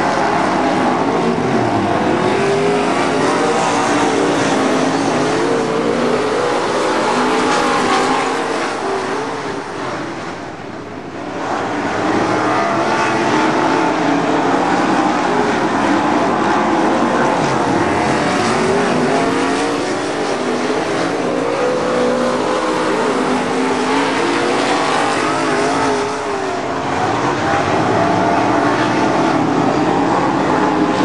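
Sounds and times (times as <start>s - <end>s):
race car engines running hard: 0.0s - 31.0s.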